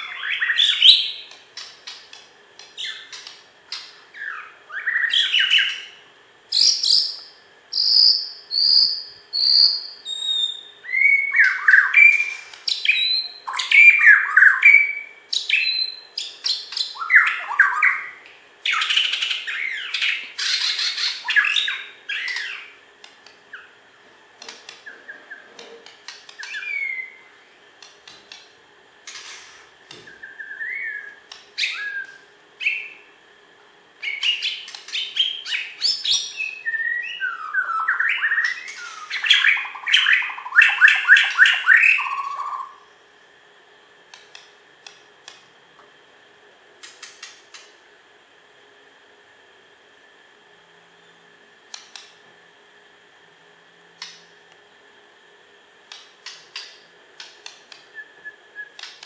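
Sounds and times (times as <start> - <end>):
songbird singing whistles and trills: 0.0 - 1.4, 2.8 - 22.8, 26.3 - 27.3, 30.0 - 33.0, 34.0 - 42.8, 57.9 - 59.0.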